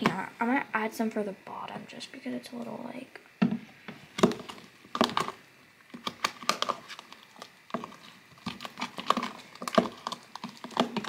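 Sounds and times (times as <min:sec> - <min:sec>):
spoon stirring thick slime: 0:04.2 - 0:11.0.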